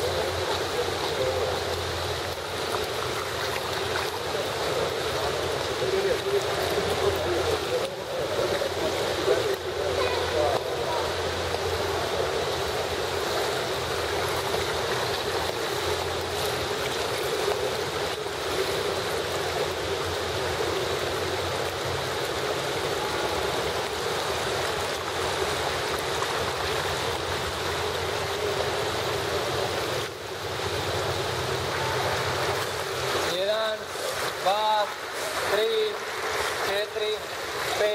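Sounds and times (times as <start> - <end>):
rushing water in pool: 0.0 - 37.9.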